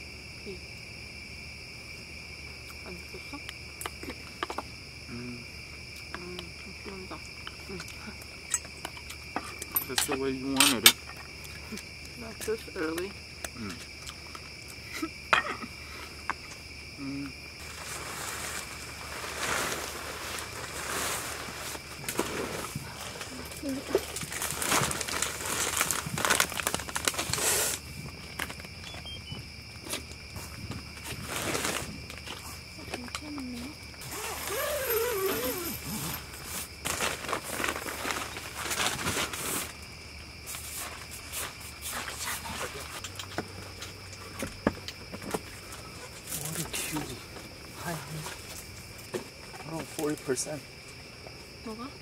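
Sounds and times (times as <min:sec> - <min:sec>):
crickets chirping: 0:00.0 - 0:52.0
rustling: 0:17.6 - 0:29.3, 0:30.0 - 0:32.7, 0:34.0 - 0:39.8.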